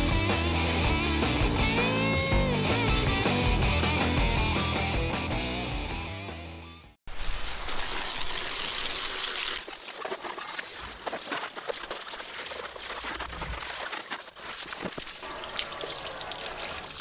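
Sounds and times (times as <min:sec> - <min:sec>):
hose water spraying: 0:07.1 - 0:17.0
water splashing and dripping: 0:07.1 - 0:17.0.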